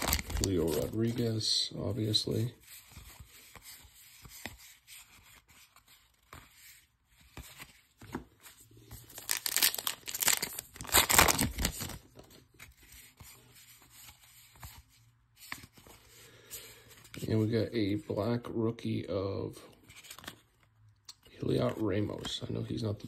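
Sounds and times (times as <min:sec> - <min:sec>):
card pack wrapper ripping: 0:00.0 - 0:01.0, 0:09.1 - 0:12.0
wrapper crinkling: 0:00.0 - 0:01.1, 0:09.0 - 0:12.0
cards rustling: 0:00.0 - 0:18.0, 0:19.6 - 0:23.0.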